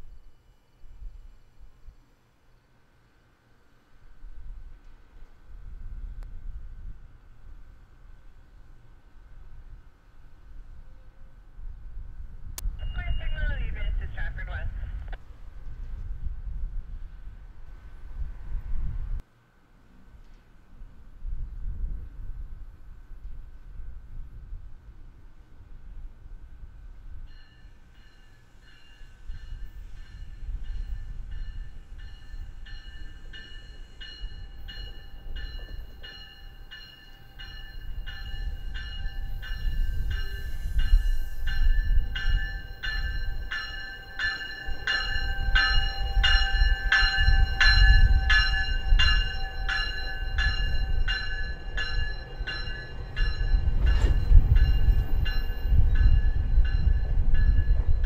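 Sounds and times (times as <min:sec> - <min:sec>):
train wheels rumbling: 0:26.9 - 0:58.0
bell ringing: 0:32.0 - 0:57.8.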